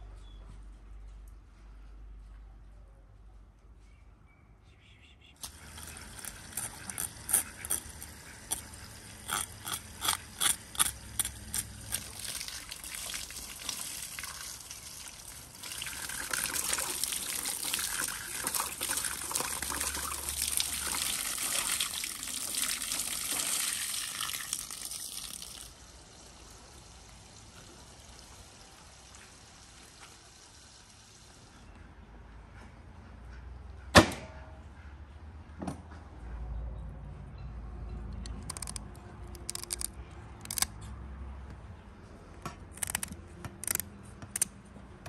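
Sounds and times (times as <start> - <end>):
knife scraping fish: 5.4 - 12.2.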